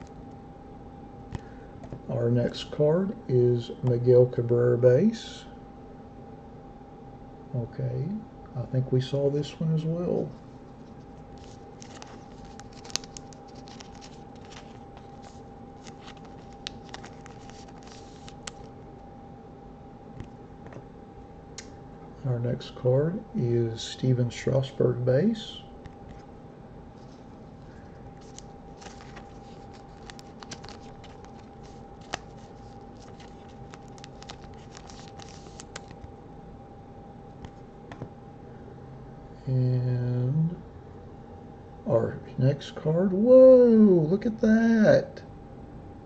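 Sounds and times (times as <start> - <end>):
faint steady hum: 0.0 - 46.0
cards sliding against each other: 11.4 - 18.7
trading cards clicking and sliding: 11.4 - 18.7, 28.2 - 36.1.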